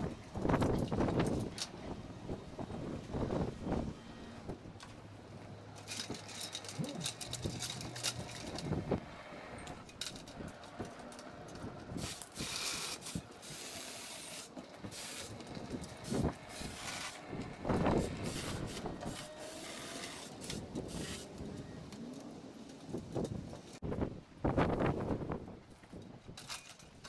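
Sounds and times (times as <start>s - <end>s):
person climbing metal ladder: 5.7s - 9.0s.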